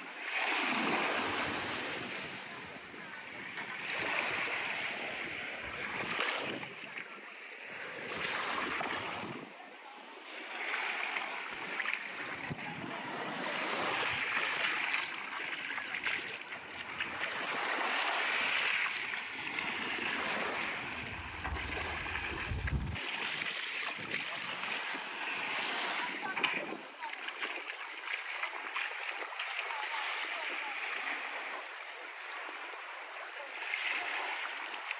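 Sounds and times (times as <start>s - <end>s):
small waves washing onto sand: 0.0s - 34.9s
low rumble: 20.8s - 23.0s.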